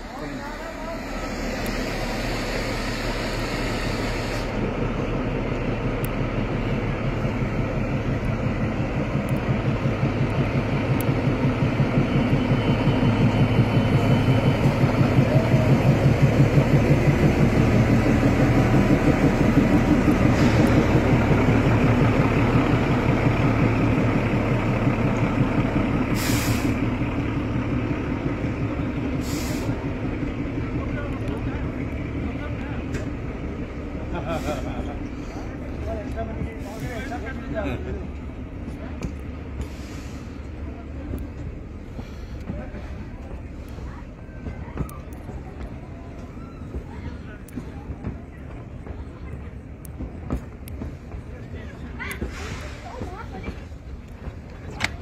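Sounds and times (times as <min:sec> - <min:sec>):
diesel locomotive engine throb: 0:00.0 - 0:55.0
short hisses: 0:26.2 - 0:26.8.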